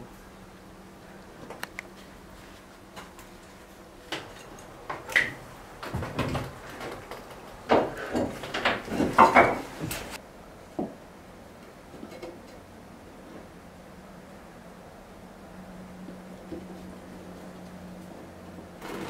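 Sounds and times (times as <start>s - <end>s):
wood knocking and scraping: 4.9s - 10.2s.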